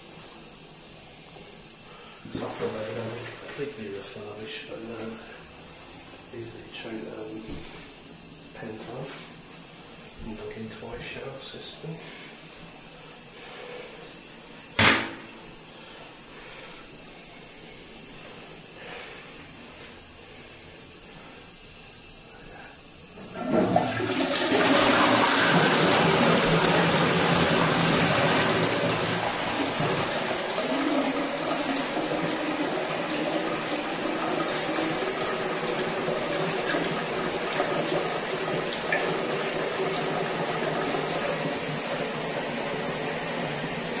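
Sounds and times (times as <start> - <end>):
toilet cistern flushing: 2.2 - 9.1, 23.1 - 44.0
sharp knock: 14.8 - 15.3.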